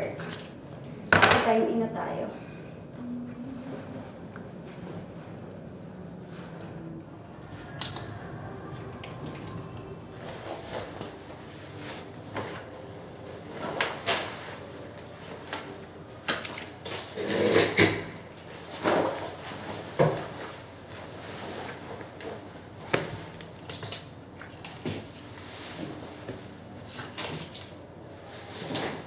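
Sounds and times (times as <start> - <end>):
clothing and bag rustling: 3.6 - 8.0, 10.1 - 17.5, 18.4 - 23.4.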